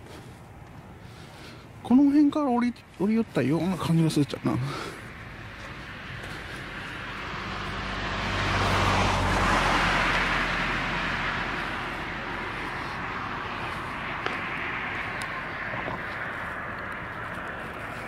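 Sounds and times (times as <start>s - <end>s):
car passing: 2.9s - 18.0s.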